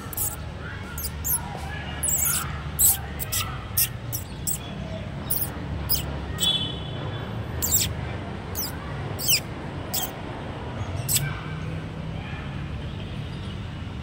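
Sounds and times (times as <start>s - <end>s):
high-pitched chirps: 0.0s - 0.4s, 1.0s - 1.4s, 2.0s - 4.6s, 5.3s - 6.1s, 7.6s - 7.9s, 8.6s - 9.4s.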